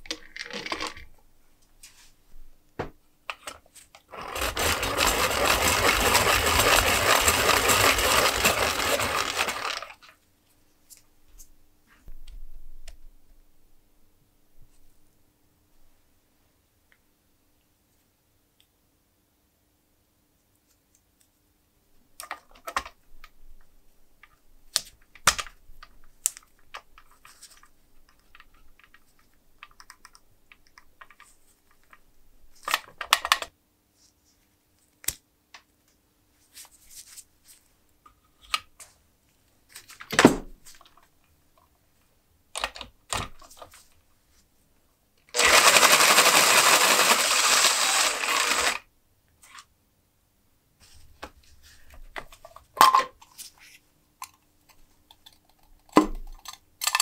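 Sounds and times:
power tool spinning: 4.1s - 10.1s, 45.3s - 48.8s.

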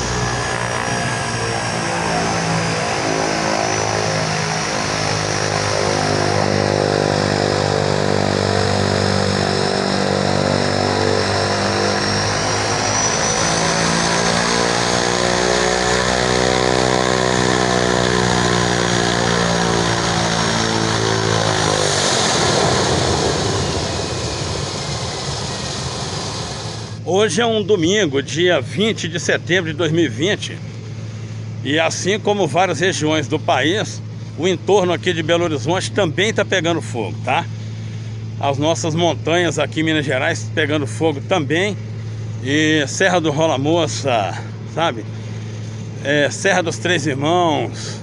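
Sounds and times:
rushing noise: 0.0s - 27.1s
high turbine whine: 0.0s - 48.0s
propeller and engine drone: 0.0s - 48.0s.

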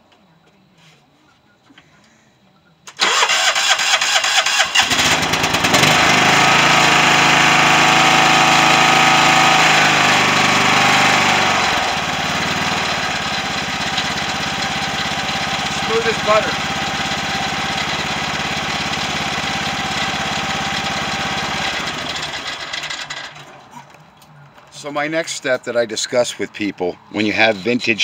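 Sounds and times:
starter cranking: 2.9s - 7.0s, 12.5s - 23.7s
mower engine running: 3.0s - 24.0s.

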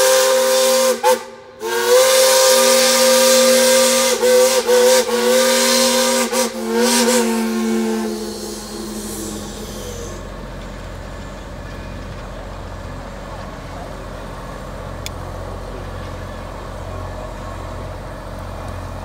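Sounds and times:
steam whistles blowing a chord: 0.0s - 10.4s
low rumble of locomotives: 0.0s - 19.0s.

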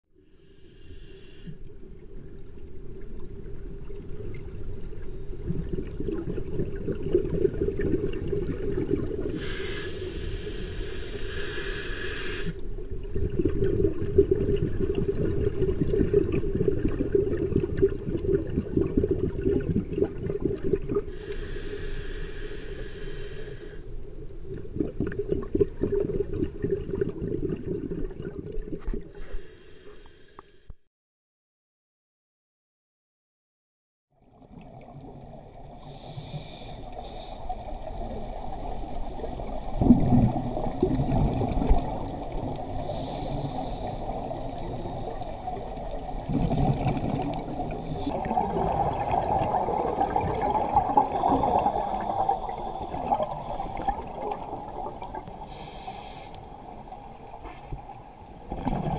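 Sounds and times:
crackling exhaust bubbles underwater: 0.3s - 30.5s, 34.2s - 58.9s
regulator hiss: 9.4s - 12.6s, 42.9s - 44.2s, 55.3s - 56.8s.

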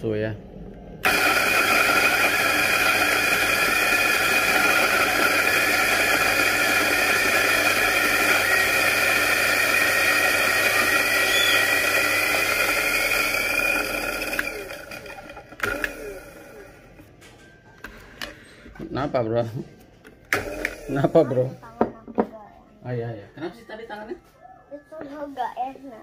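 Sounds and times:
coffee grinder grinding beans: 1.0s - 17.1s, 20.3s - 21.6s.

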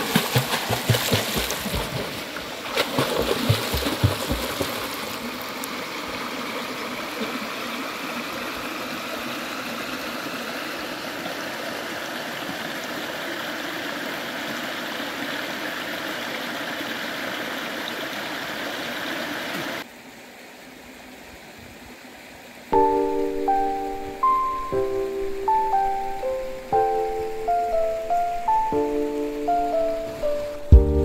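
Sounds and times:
water rushing over rocks: 0.0s - 19.9s.

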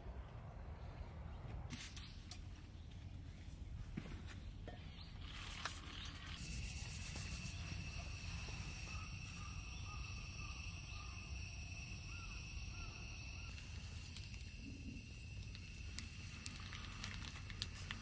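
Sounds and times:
high-pitched insect trill: 6.4s - 18.0s.

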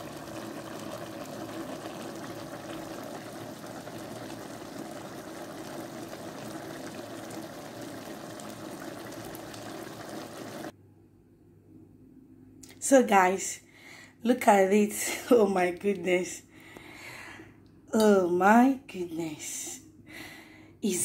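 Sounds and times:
stew bubbling in a pan: 0.0s - 10.7s.

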